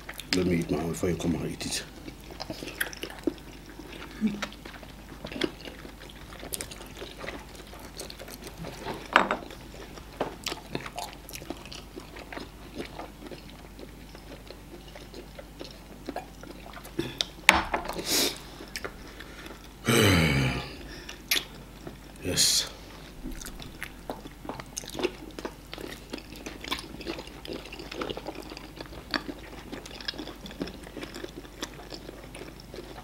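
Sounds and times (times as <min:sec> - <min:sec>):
chewing and wet mouth smacks: 0:01.9 - 0:08.8, 0:09.5 - 0:17.4, 0:21.1 - 0:22.0, 0:23.2 - 0:33.0.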